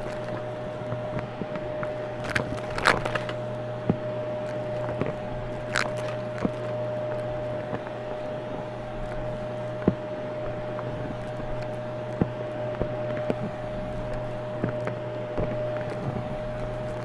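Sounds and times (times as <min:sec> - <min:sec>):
debris crackling through hose: 0:00.0 - 0:08.1
vacuum cleaner running: 0:00.0 - 0:17.0.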